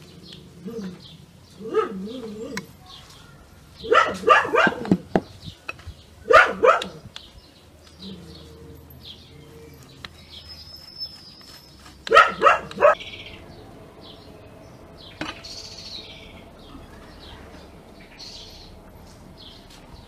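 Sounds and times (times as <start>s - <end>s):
birds chirping: 0.0s - 20.0s
dog barking: 1.6s - 2.2s, 3.8s - 5.0s, 6.3s - 7.0s, 12.1s - 13.0s.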